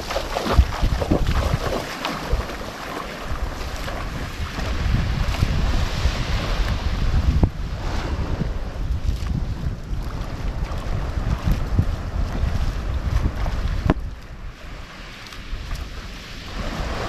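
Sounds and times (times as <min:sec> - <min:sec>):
waves sloshing: 0:00.0 - 0:17.0
wind buffeting microphone: 0:00.0 - 0:17.0.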